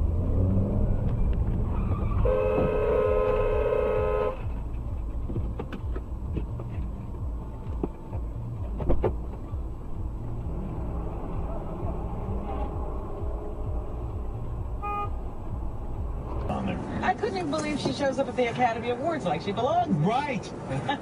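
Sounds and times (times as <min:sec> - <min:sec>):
engine and road noise rumble: 0:00.0 - 0:21.0
car horn blast: 0:02.2 - 0:04.5, 0:14.8 - 0:15.2.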